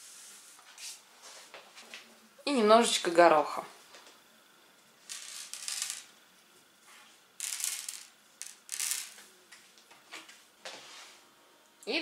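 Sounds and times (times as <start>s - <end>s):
peas rattling on wooden table: 5.1s - 6.1s, 7.4s - 9.3s.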